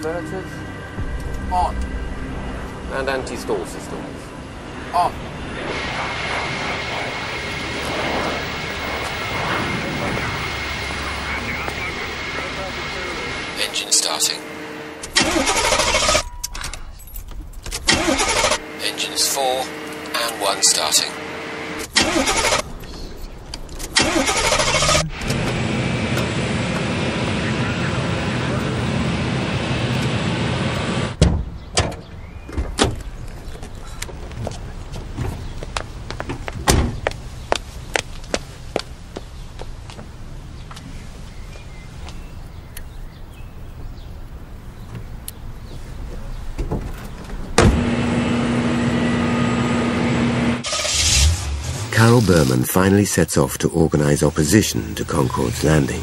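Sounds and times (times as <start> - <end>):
jet engine rushing bursts: 0.0 - 16.3, 23.9 - 31.2, 47.7 - 52.3
jet engine low rumble: 0.0 - 17.9, 24.7 - 31.2.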